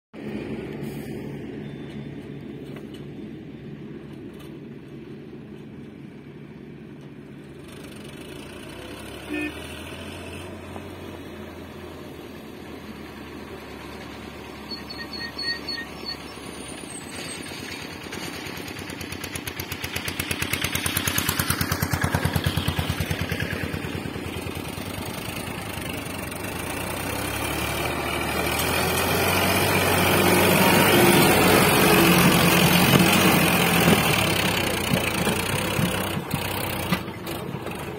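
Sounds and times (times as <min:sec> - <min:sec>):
tractor diesel engine running: 0:10.6 - 0:37.9.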